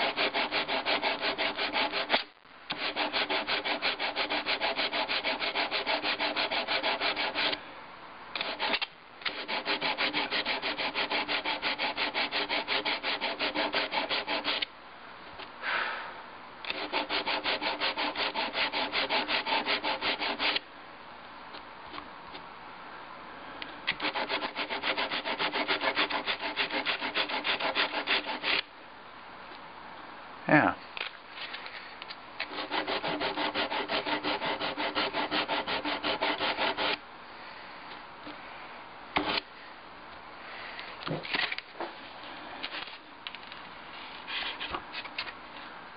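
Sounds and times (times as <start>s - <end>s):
sandpaper rubbing on metal seam: 2.8s - 7.6s, 8.4s - 14.6s, 16.7s - 20.6s, 24.0s - 28.6s, 32.5s - 37.0s.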